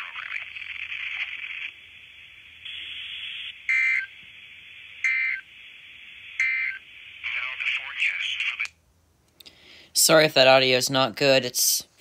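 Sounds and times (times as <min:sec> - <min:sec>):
radio voice: 0:00.0 - 0:01.4, 0:06.4 - 0:08.7
radio hiss: 0:00.0 - 0:08.8
screeching two-tone data bursts: 0:02.6 - 0:04.2, 0:04.8 - 0:07.5.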